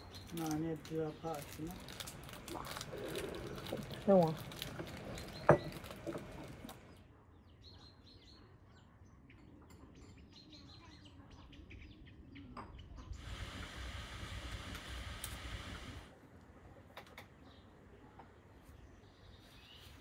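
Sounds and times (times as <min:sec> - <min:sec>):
steady hiss with low rumble: 0:13.2 - 0:16.9.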